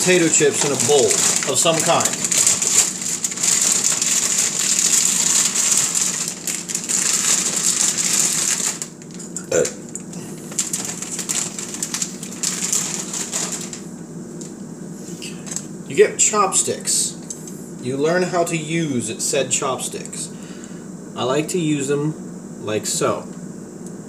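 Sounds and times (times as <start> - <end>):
chips falling into plastic container: 0.0 - 9.8, 10.4 - 13.9
chip bag crinkling: 0.0 - 14.6.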